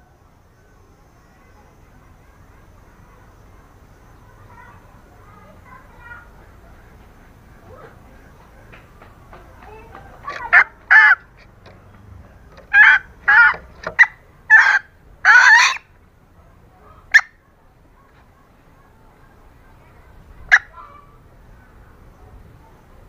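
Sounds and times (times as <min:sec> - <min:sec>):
hen clucking harshly: 0:09.9 - 0:11.8, 0:12.5 - 0:15.9.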